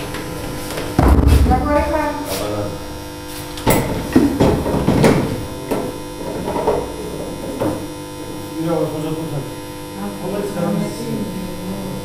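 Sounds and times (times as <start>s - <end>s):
steady electric hum: 0.0s - 12.0s
device knocking on wooden ledge: 3.7s - 7.9s.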